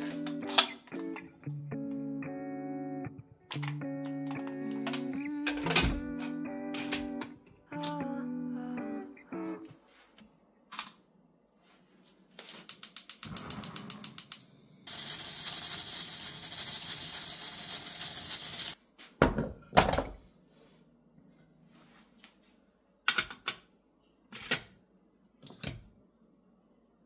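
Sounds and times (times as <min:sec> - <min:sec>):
steam hissing from pressure cooker: 0:14.9 - 0:18.8.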